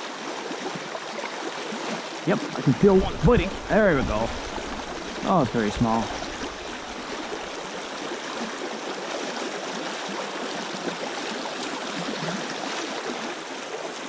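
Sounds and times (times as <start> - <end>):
brook rushing over stones: 2.2 - 8.2.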